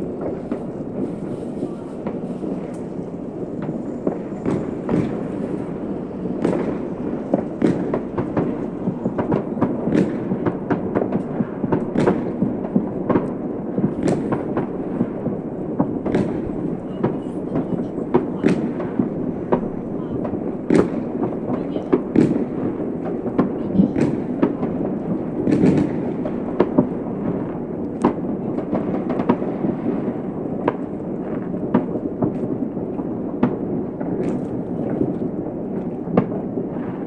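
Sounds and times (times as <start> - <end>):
steady rushing background noise: 0.0 - 25.4
distant fireworks bangs and crackles: 0.0 - 37.0.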